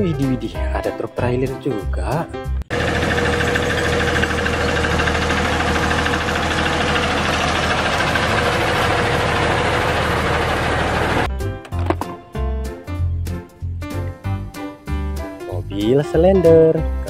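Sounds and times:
truck diesel engine running: 0:02.7 - 0:11.3.

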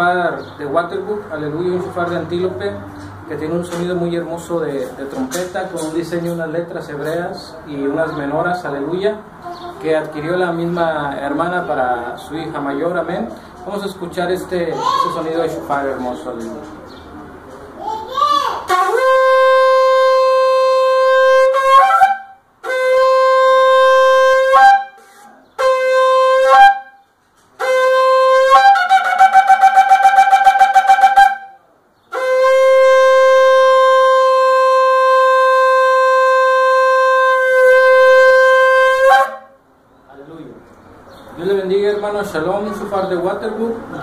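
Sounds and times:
shofar blasts: 0:18.7 - 0:27.0, 0:27.6 - 0:39.6.

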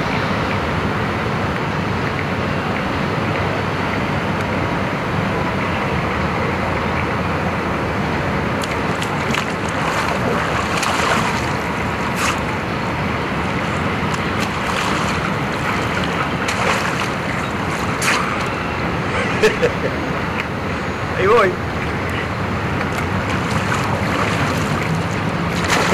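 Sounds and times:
steady rushing noise: 0:00.0 - 0:25.9
water splashing: 0:08.4 - 0:19.1, 0:21.4 - 0:25.9.

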